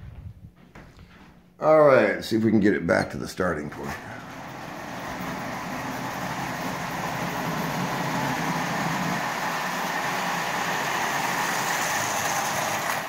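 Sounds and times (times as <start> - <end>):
wheels rumbling on rails: 3.9 - 13.0
toy train motor whirring: 4.3 - 13.0.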